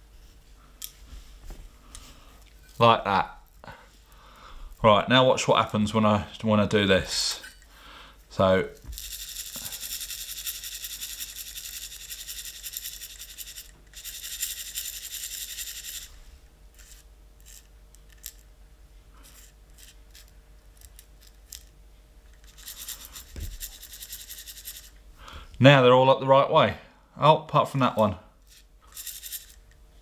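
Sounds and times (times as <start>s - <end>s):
metal caps rattling in a tray: 9.0s - 16.1s, 22.4s - 24.9s, 28.5s - 29.6s.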